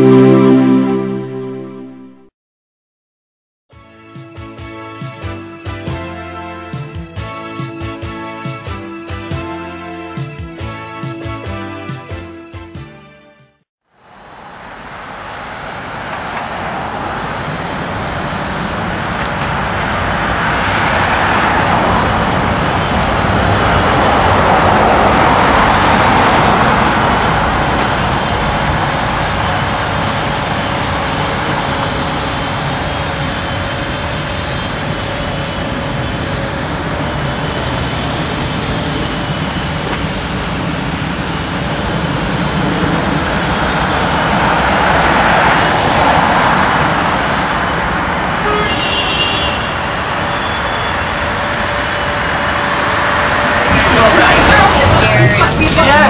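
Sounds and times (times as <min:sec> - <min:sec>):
car tyres and engines rushing: 0:13.9 - 0:56.0.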